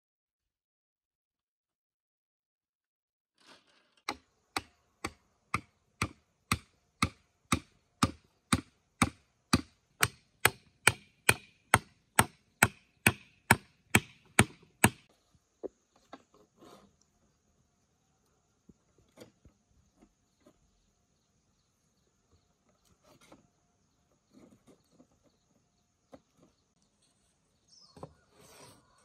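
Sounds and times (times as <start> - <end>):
chopping on wood: 4.1 - 15.1.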